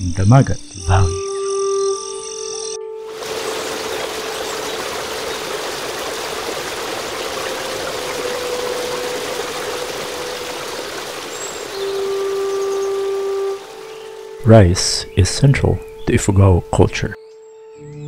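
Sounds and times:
sustained musical note: 0:00.8 - 0:16.8
rushing river water: 0:03.0 - 0:15.2.

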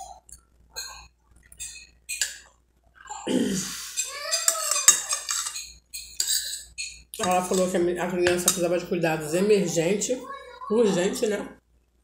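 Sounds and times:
metal spoon scraping glass bowl: 0:00.8 - 0:02.4, 0:03.9 - 0:08.6.

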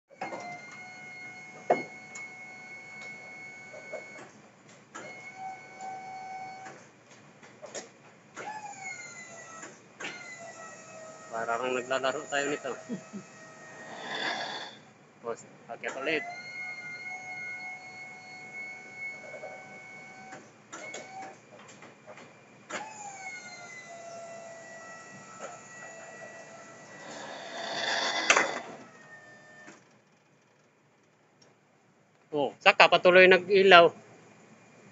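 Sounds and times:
hydraulic pump whining: 0:00.1 - 0:04.3, 0:08.4 - 0:14.9, 0:15.9 - 0:21.4, 0:22.7 - 0:29.9.

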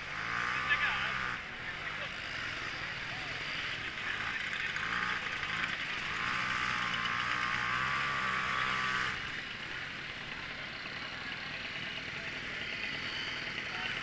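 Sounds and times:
moped engine running loud: 0:00.0 - 0:14.0
moped engines idling: 0:00.0 - 0:14.0.

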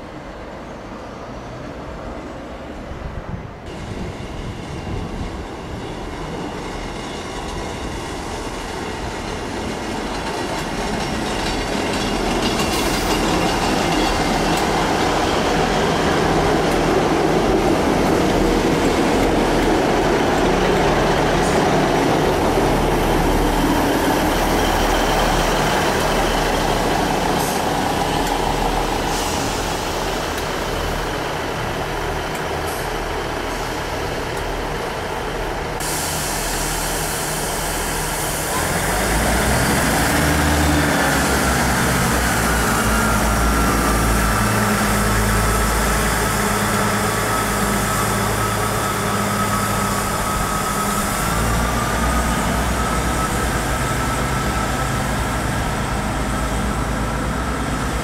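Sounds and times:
diesel train engines: 0:00.0 - 0:58.0
train wheels on rails: 0:03.6 - 0:58.0.

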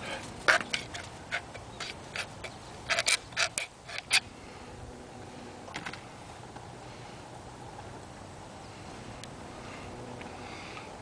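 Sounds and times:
tool scraping aluminium can: 0:00.0 - 0:04.2.

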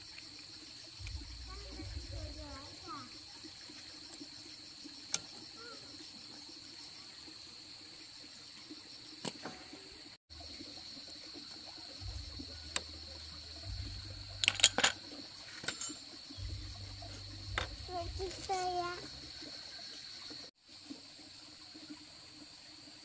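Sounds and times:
high-pitched insect buzzing: 0:12.0 - 0:20.4.

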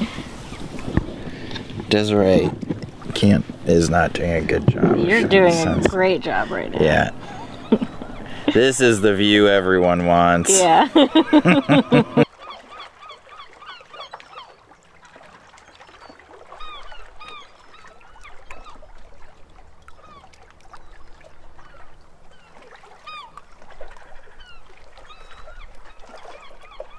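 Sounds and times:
birds squawking: 0:05.0 - 0:10.3, 0:23.1 - 0:23.4.

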